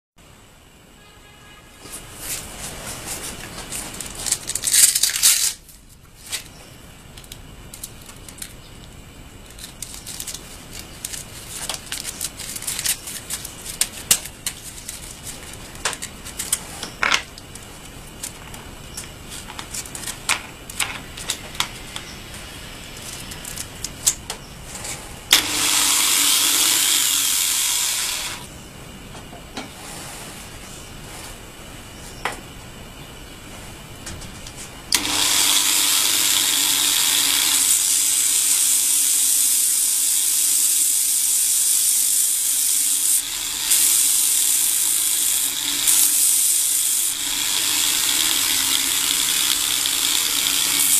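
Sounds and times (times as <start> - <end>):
clicks and rattles of handling: 7.1 - 22.1
angle grinder running: 25.3 - 28.5, 34.9 - 50.9.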